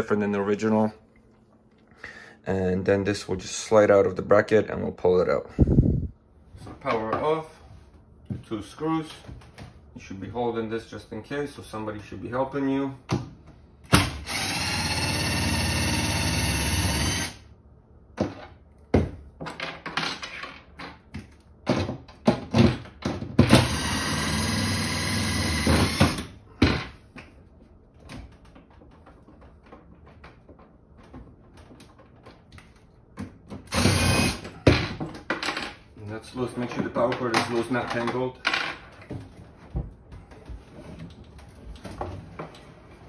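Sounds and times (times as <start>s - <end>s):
cordless drill running: 14.2s - 17.4s, 23.6s - 26.3s, 33.7s - 34.4s.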